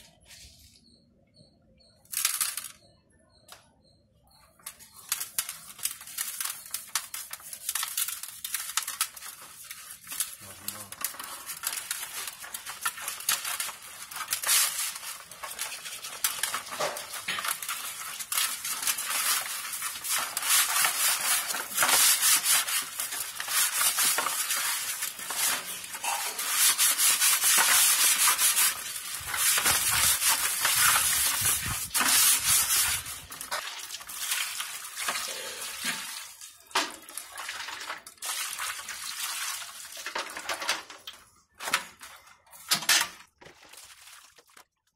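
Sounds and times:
salt scrubbing fish skin in basin: 5.2 - 36.4.

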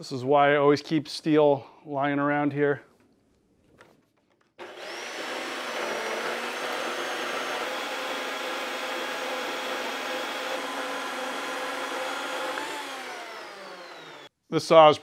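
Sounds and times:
bandsaw cutting steel: 4.6 - 14.3.

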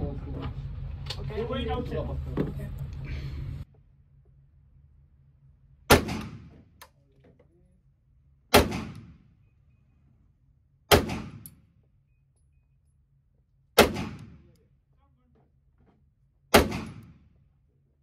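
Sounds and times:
pistol shots with echo: 5.9 - 6.6, 8.5 - 9.3, 10.9 - 11.6, 13.8 - 14.5, 16.5 - 17.3.

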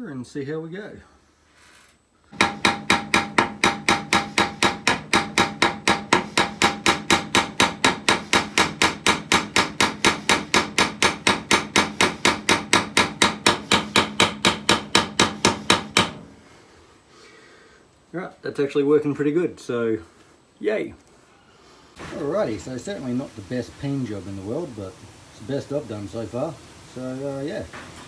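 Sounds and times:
small hammer tapping metal: 2.4 - 16.2.

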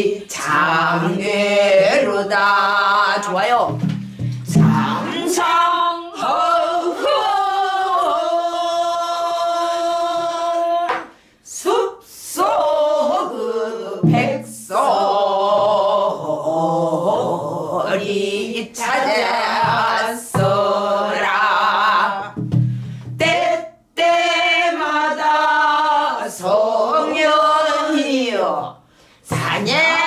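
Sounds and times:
woman singing with wavering vibrato: 0.0 - 3.6, 4.5 - 22.4, 29.3 - 30.0.

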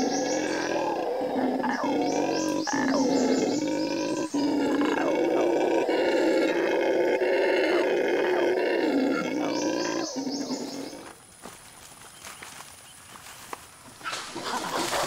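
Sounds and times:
monkeys howling: 0.0 - 11.1.

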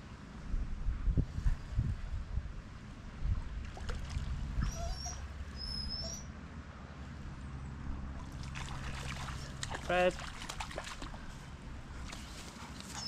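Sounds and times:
wind rumbling on microphone: 0.0 - 6.0.

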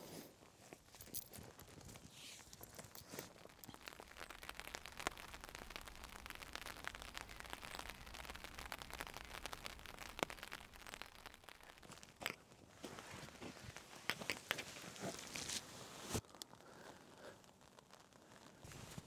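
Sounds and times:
light rain pattering: 0.5 - 19.0.

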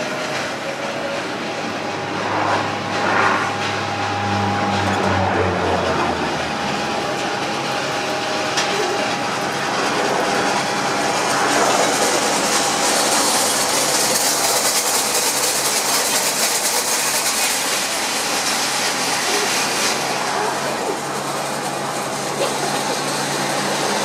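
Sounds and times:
turboprop engine and propeller noise: 0.0 - 24.0
fine rapid buzz: 1.7 - 6.8.

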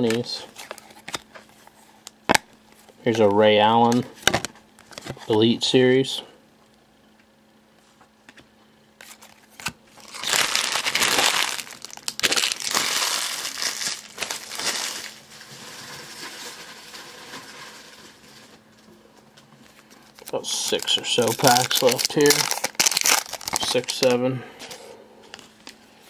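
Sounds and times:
cards being handled: 8.3 - 15.2, 19.7 - 24.8
wrapper crinkling and tearing: 9.0 - 18.6, 20.0 - 24.2.

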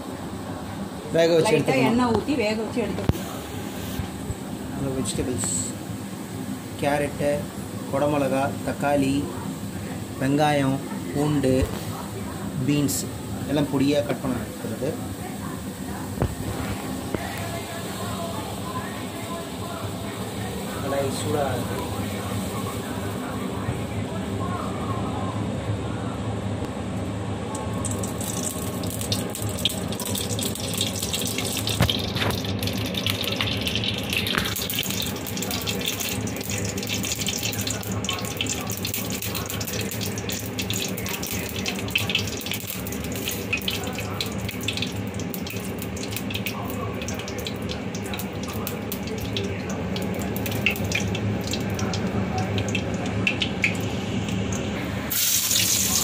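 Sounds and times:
oil sizzling in a pan: 11.8 - 23.6, 27.6 - 56.0
oil crackling and popping: 16.2 - 17.6, 27.5 - 56.0.

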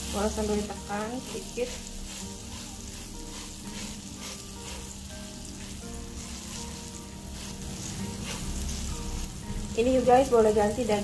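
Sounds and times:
steak sizzling in a pan: 0.0 - 11.0.

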